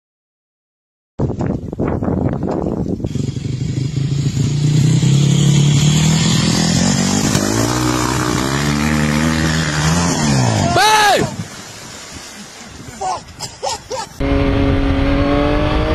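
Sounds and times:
dirt bike engine running: 0:03.0 - 0:10.5.

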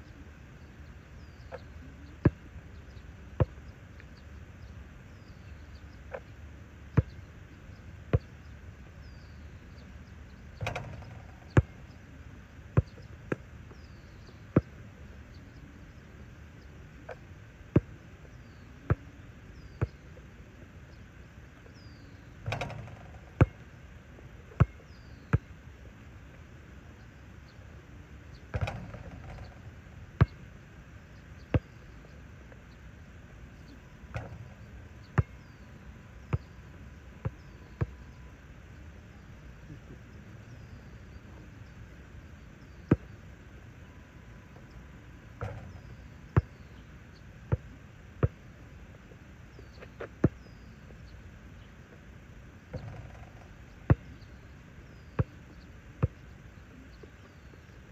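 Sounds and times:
small birds chirping: 0:00.0 - 0:57.9
basketball bouncing on asphalt: 0:10.6 - 0:12.0, 0:12.8 - 0:14.0, 0:22.4 - 0:23.7, 0:24.6 - 0:25.5, 0:28.5 - 0:30.5, 0:31.5 - 0:31.9, 0:34.1 - 0:35.6, 0:42.9 - 0:43.1, 0:45.4 - 0:46.8, 0:47.5 - 0:48.4, 0:52.7 - 0:54.3.

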